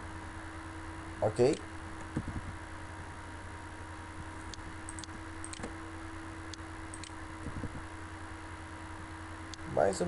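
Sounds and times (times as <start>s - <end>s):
electrical hum: 0.0s - 10.0s
computer mouse clicking: 4.5s - 5.7s, 6.5s - 7.2s.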